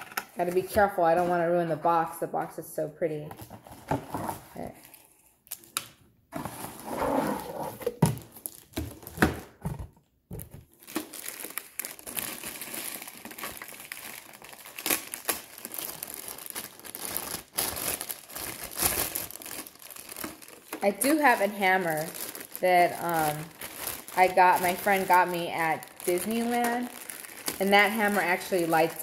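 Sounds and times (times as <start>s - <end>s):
plastic wrapping crinkling: 7.8s - 9.6s, 10.3s - 29.0s.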